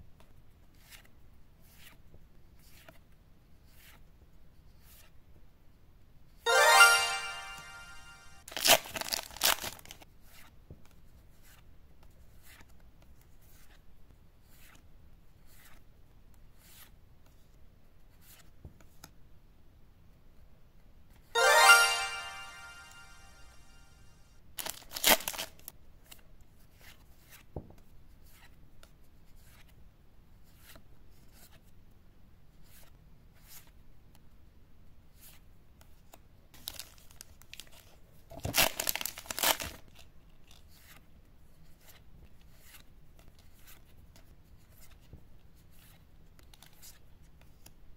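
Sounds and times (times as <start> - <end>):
ringing musical sting: 6.5 - 8.4, 21.4 - 23.7
foil wrapper tearing: 8.6 - 9.9, 24.6 - 25.5, 38.6 - 39.8.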